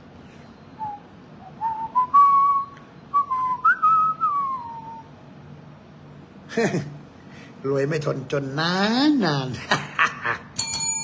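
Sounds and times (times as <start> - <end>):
person whistling a melody: 0.8 - 5.1.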